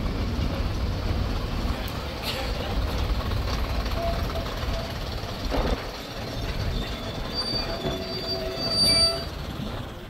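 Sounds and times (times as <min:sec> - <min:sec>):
train low rumble: 0:00.0 - 0:10.0
train wheels squealing on rails: 0:03.8 - 0:10.0.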